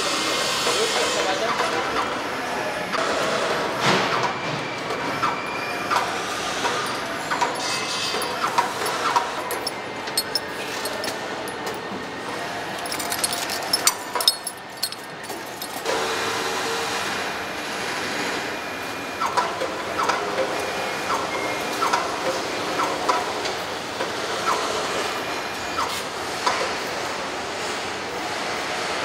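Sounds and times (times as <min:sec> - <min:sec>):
tools clicking on metal: 0:06.7 - 0:11.8, 0:12.8 - 0:15.9.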